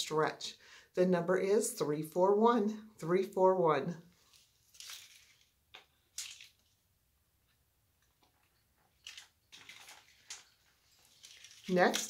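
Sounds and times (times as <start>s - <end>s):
jewelry rustling: 4.1s - 12.0s.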